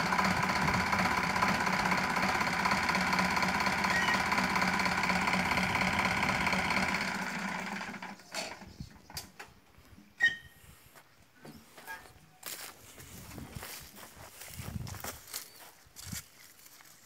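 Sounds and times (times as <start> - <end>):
tractor diesel engine running: 0.0 - 9.3.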